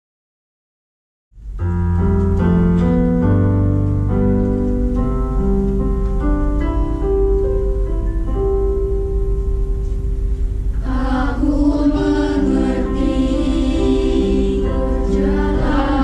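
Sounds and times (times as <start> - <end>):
electronic keyboard piano chords: 1.4 - 16.0.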